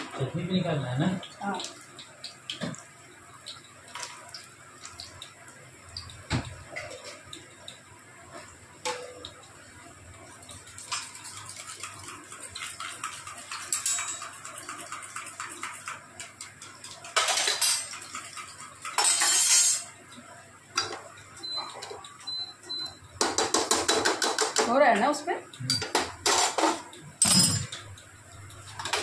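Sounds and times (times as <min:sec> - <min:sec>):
food frying in hot oil: 0:00.0 - 0:29.0
metal utensils clinking: 0:12.5 - 0:14.4, 0:17.0 - 0:19.9, 0:25.7 - 0:27.9.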